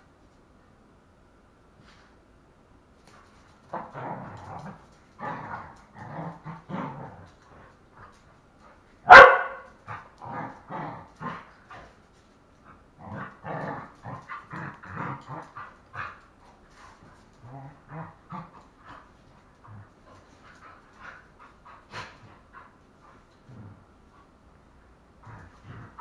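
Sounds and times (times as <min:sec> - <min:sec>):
dogs barking roughly: 0:09.1 - 0:09.8.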